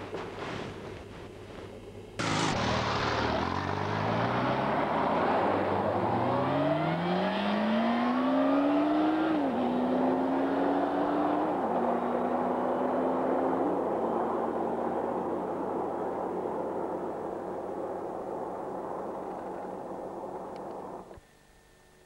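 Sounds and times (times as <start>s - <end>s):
low hiss: 0.0s - 6.1s
motorcycle engine accelerating: 2.2s - 21.1s.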